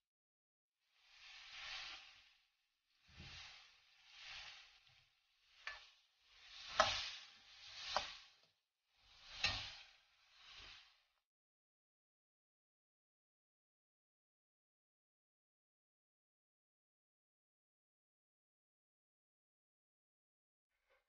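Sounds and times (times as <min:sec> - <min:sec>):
ladle swishing vegetables in pan: 0:00.9 - 0:11.1.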